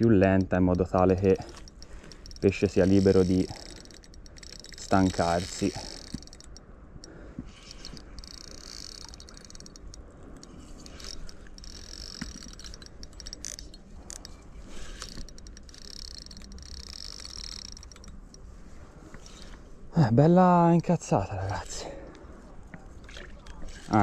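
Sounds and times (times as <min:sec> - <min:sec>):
fishing reel gears whirring: 0:00.0 - 0:19.8, 0:21.4 - 0:24.0.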